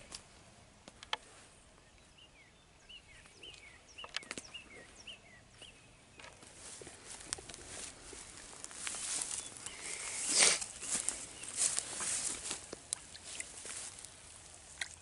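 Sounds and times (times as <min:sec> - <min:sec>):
rustling: 0:06.3 - 0:15.0
small bird chirping: 0:08.7 - 0:12.4.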